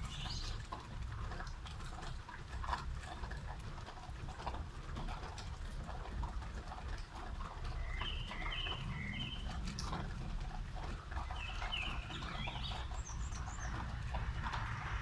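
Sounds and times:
bird chirping: 0:00.0 - 0:00.6, 0:07.7 - 0:09.7, 0:11.2 - 0:14.0
steady rain: 0:00.0 - 0:15.0.

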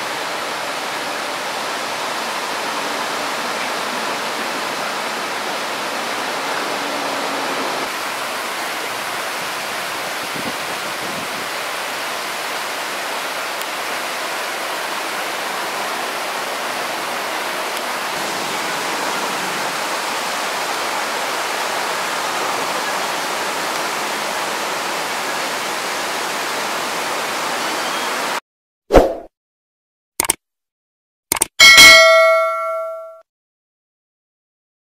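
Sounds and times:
waterfall rushing: 0:00.0 - 0:28.4
quick double click: 0:30.2 - 0:30.4, 0:31.3 - 0:31.5.

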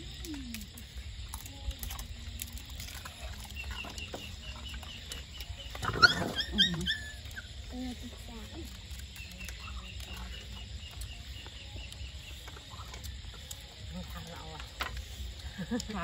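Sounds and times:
faint high animal chirps: 0:03.4 - 0:07.7.

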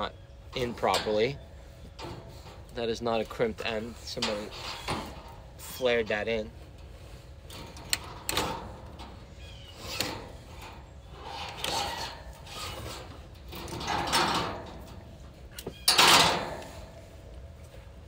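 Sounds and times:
cable scraping in metal duct: 0:00.6 - 0:17.3.

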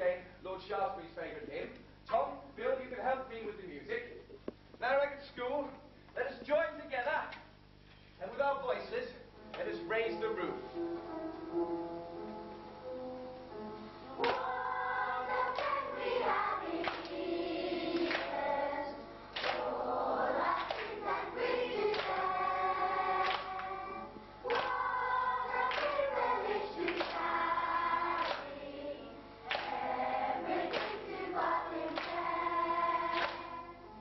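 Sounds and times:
children's choir singing: 0:14.1 - 0:33.9.

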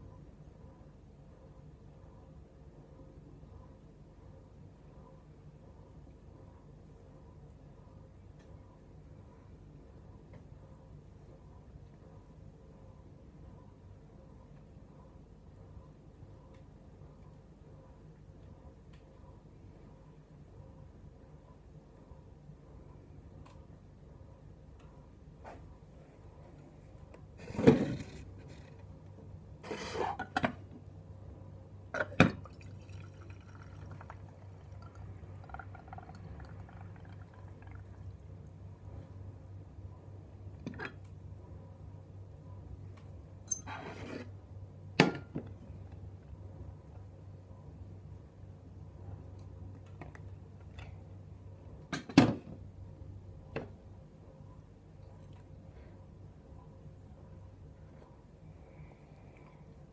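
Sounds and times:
tea draining into mug: 0:32.1 - 0:38.5.

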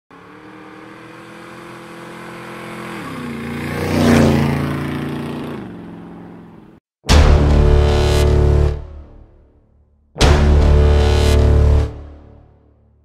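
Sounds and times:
motorcycle engine passing by: 0:00.1 - 0:06.8.

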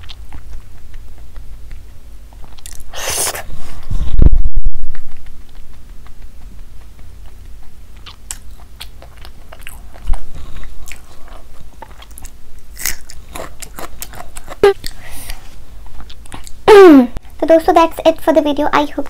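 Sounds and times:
person chewing wetly: 0:00.0 - 0:03.8, 0:04.8 - 0:16.6
crisp bite: 0:11.8 - 0:15.0.

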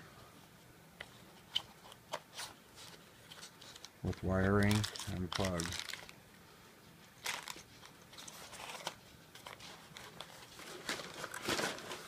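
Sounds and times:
plastic wrapping crinkling: 0:02.4 - 0:06.2, 0:07.2 - 0:12.0.

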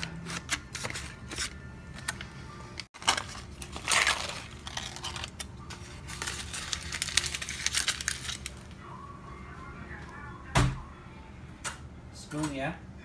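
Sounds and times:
aluminum foil crinkling: 0:03.0 - 0:08.7.

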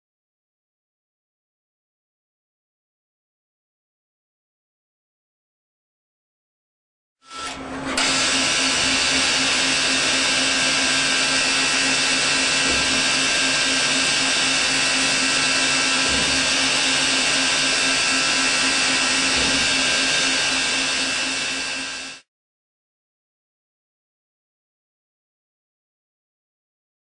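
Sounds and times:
lathe machining whir: 0:07.2 - 0:22.3.

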